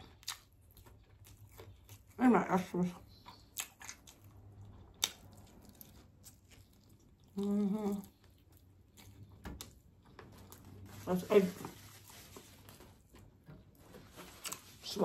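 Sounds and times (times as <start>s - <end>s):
person chewing: 0.0s - 2.2s, 2.8s - 11.0s, 14.2s - 14.8s.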